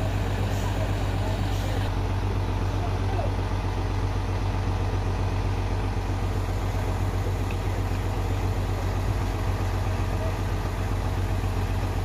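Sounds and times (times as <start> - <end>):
heavy vehicle engine idling: 0.0 - 12.0.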